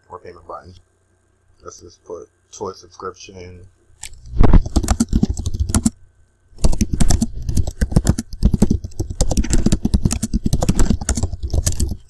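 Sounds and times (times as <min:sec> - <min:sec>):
fast typing on keyboard: 0:04.4 - 0:06.0, 0:06.6 - 0:12.0.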